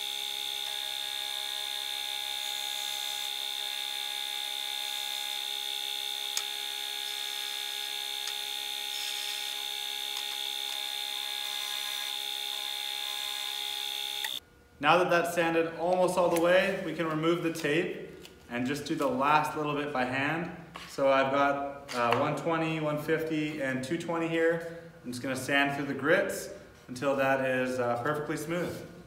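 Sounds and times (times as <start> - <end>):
disc sander whining: 0.0 - 14.4.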